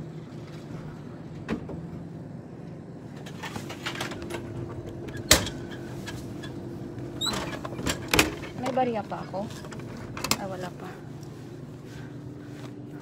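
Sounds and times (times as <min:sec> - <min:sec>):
vending machine clicks and rattles: 0:03.1 - 0:10.7.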